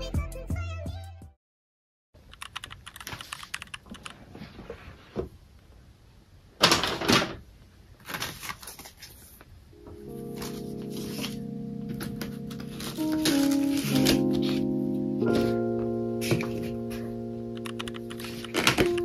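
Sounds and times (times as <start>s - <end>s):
paper leaflets rustling: 8.0s - 9.5s, 10.2s - 14.7s, 18.0s - 19.0s.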